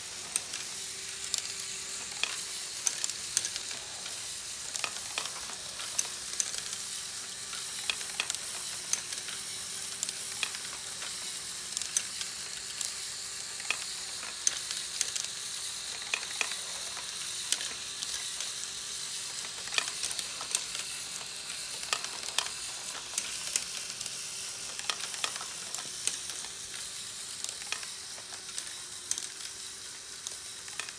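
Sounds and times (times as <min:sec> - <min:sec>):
plastic gears clattering: 0:00.0 - 0:30.9
small electric motor humming: 0:00.0 - 0:30.9.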